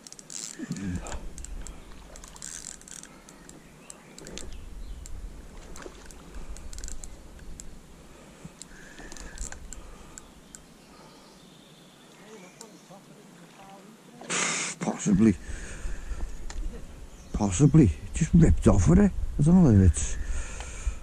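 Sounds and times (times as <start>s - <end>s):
fishing reel clicking and whirring: 2.2s - 3.1s, 6.0s - 7.7s.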